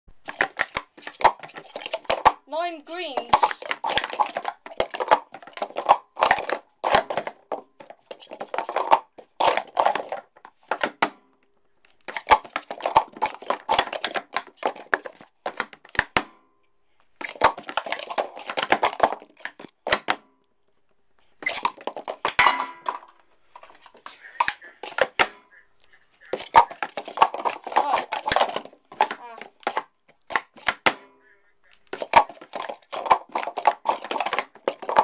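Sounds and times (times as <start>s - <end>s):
plastic cups clattering: 0.1s - 11.2s, 11.8s - 16.3s, 17.1s - 31.1s, 31.7s - 35.0s.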